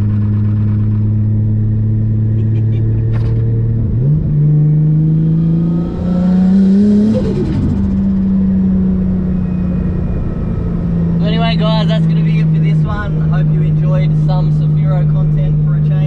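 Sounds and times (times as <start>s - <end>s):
car engine accelerating: 0.0s - 16.0s.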